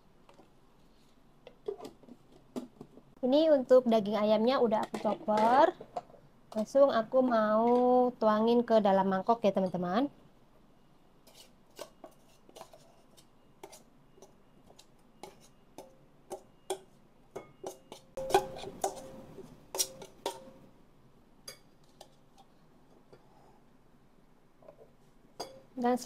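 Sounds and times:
metal spoon scraping bowls: 0:17.5 - 0:20.7.

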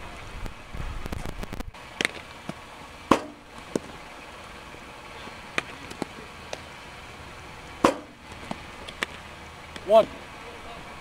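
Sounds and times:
baseballs knocking: 0:02.0 - 0:04.0, 0:05.5 - 0:06.7, 0:07.8 - 0:09.9.

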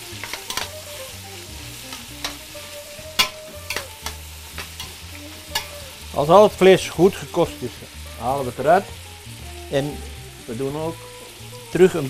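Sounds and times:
meat sizzling in oil: 0:00.0 - 0:12.0
metal tongs clinking against pot: 0:00.2 - 0:00.7, 0:03.2 - 0:05.8.

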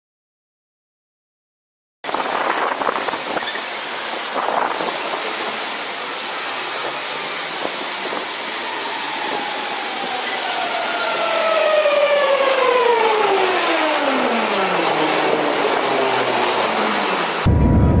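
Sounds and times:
train rushing noise: 0:02.1 - 0:18.0
train whine sliding down in pitch: 0:06.4 - 0:18.0.

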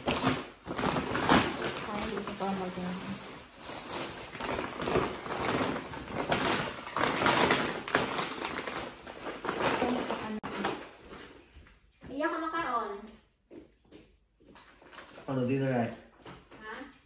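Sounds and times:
packaging and clothing rustling: 0:00.0 - 0:11.9.

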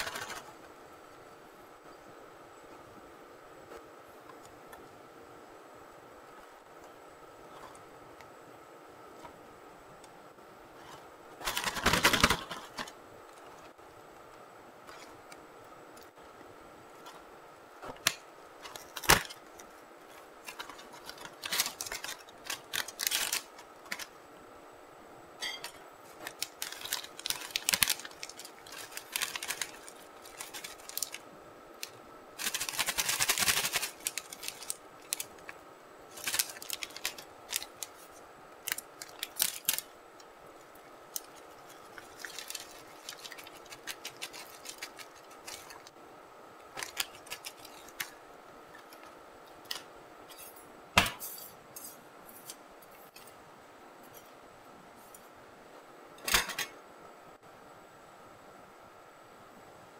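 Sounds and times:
packaging crinkling and tearing: 0:00.0 - 0:00.5, 0:10.8 - 0:13.0, 0:17.9 - 0:24.2, 0:26.0 - 0:46.0, 0:46.7 - 0:49.9.

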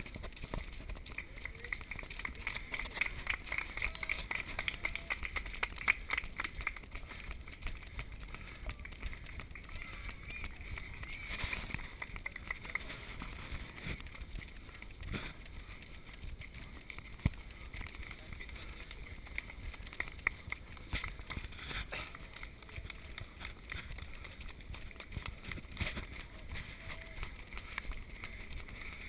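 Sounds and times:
footsteps on dirt path: 0:00.0 - 0:29.0
people talking in background: 0:17.3 - 0:29.0.

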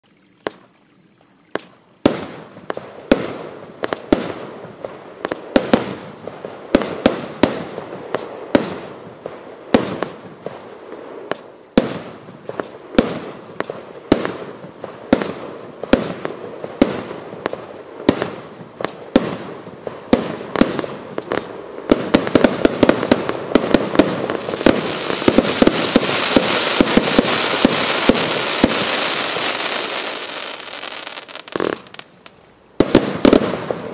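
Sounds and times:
firework shots bursting: 0:01.6 - 0:10.2, 0:11.3 - 0:32.2, 0:32.8 - 0:33.9
firework crackle: 0:01.6 - 0:33.9
fountain firework hiss: 0:11.4 - 0:32.3.

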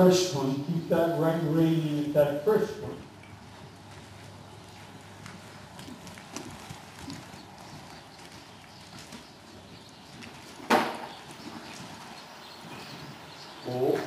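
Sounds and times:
faint hoofbeat thuds on dirt: 0:03.0 - 0:14.0.

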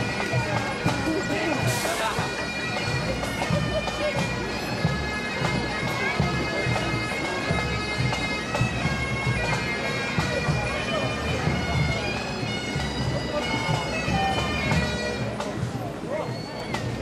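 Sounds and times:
bagpipes playing a tune: 0:00.0 - 0:17.0.

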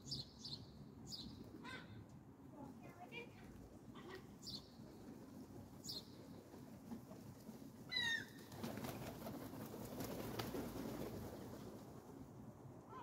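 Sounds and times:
bird wings flapping: 0:06.4 - 0:12.2.

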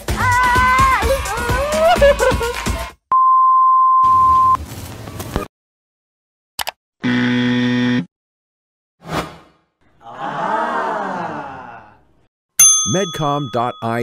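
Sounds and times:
high beep: 0:03.1 - 0:04.6.

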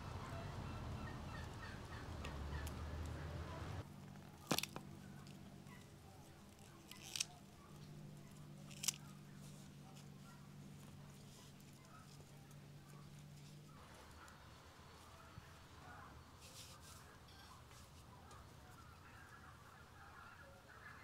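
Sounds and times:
herb stems snapping: 0:04.3 - 0:05.4, 0:06.5 - 0:07.4, 0:08.7 - 0:09.1
faint bird chirps: 0:12.9 - 0:21.0.

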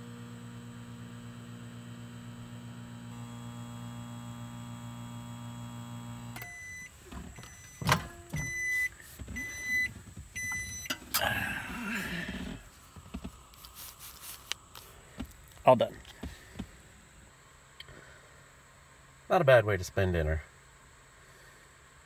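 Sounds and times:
microwave oven humming: 0:00.0 - 0:11.8
short beeps: 0:06.4 - 0:10.9.

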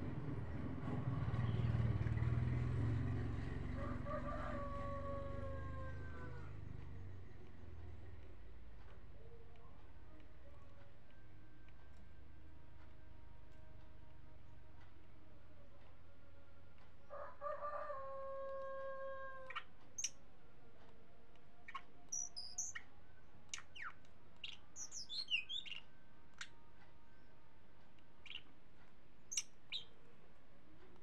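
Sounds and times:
rooster crowing: 0:03.7 - 0:06.7, 0:17.0 - 0:19.6
bird chirping: 0:19.1 - 0:20.3, 0:21.6 - 0:27.4, 0:28.2 - 0:30.3.

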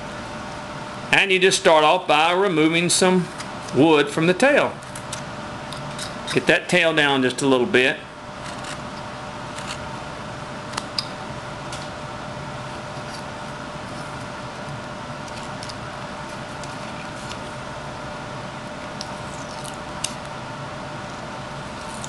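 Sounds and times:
steady background hum: 0:00.0 - 0:22.0
knife blade scraping wood: 0:08.4 - 0:09.9.

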